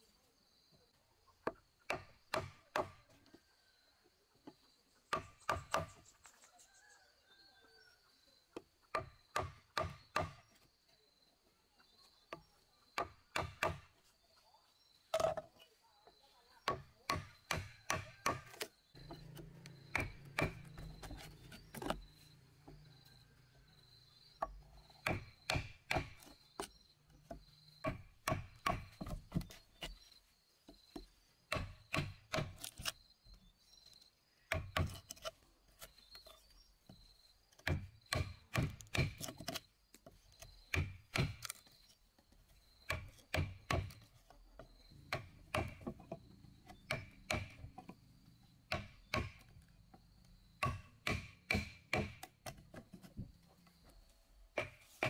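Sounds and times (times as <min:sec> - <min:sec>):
chisel knocks on wooden beam: 0:50.6 - 0:52.6.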